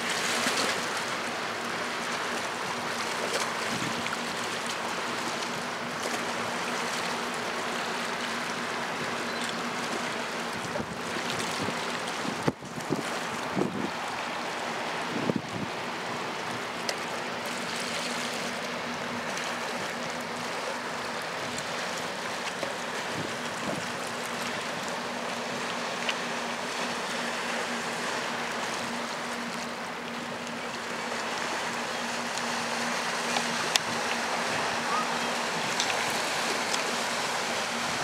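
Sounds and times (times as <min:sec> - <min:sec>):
river rushing: 0:00.0 - 0:38.0
wind on microphone: 0:10.6 - 0:14.0, 0:15.0 - 0:15.8, 0:23.1 - 0:24.0.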